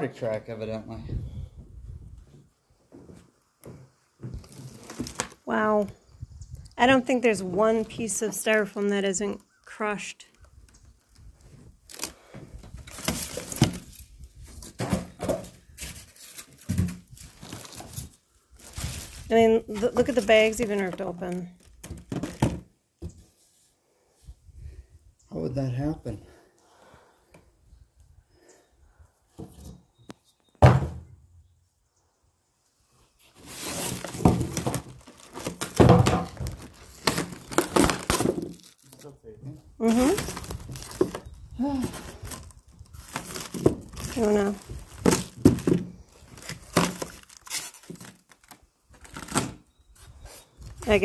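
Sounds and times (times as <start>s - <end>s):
cardboard and styrofoam rustling: 4.2s - 5.9s, 11.2s - 22.7s, 33.2s - 39.1s, 39.8s - 51.0s
plastic wrap crinkling: 4.3s - 5.5s, 15.6s - 22.4s, 33.4s - 39.1s, 39.8s - 49.6s
scraping against plastic wrap: 33.3s - 35.8s, 39.9s - 48.4s.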